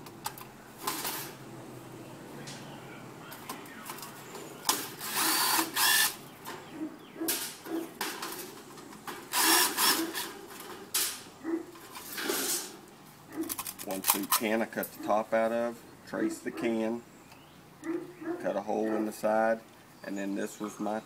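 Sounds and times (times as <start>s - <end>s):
cordless drill backing out screws: 3.9s - 6.2s, 9.1s - 10.8s.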